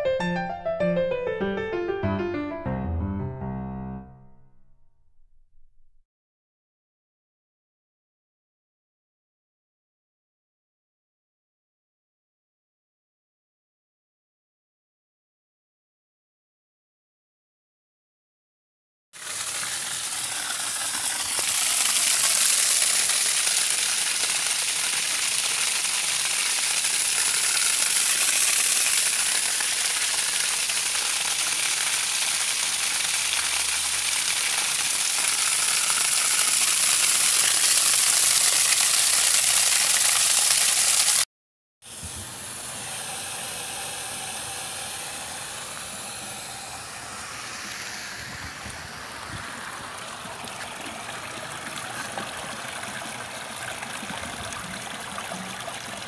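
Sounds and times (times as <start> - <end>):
water jet hissing rush: 19.2 - 41.2, 41.9 - 52.7.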